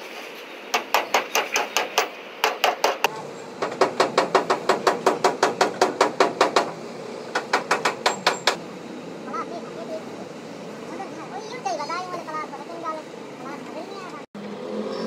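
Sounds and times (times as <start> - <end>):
rapid metallic hammering: 0.7 - 8.6.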